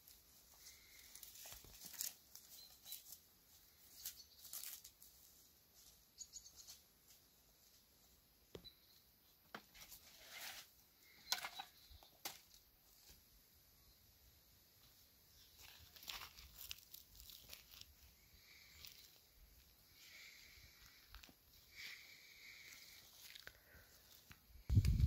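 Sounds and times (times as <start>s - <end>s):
plants brushing: 0.0s - 6.0s, 9.7s - 11.2s, 15.4s - 25.0s
footsteps through grass: 15.4s - 25.0s.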